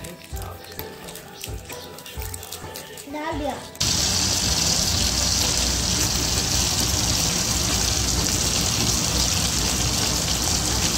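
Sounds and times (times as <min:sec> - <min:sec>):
chicken sizzling in hot oil: 0:03.8 - 0:10.9.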